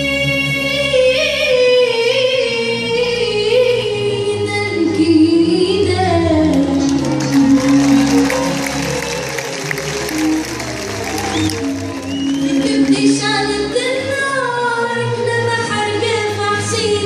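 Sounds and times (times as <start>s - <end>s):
bowed violins: 0.0s - 17.0s
singers holding long notes: 5.5s - 17.0s.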